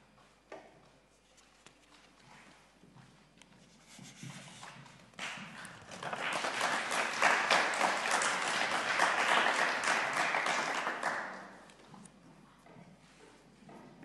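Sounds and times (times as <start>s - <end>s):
applause: 5.2s - 11.8s.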